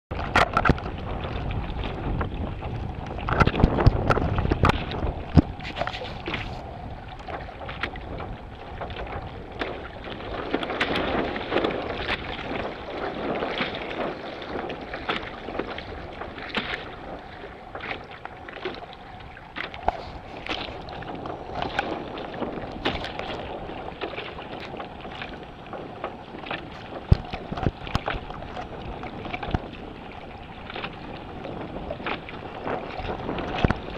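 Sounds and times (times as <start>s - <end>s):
water slapping against boat hull: 0.1s - 33.9s
wind buffeting microphone: 0.1s - 33.9s.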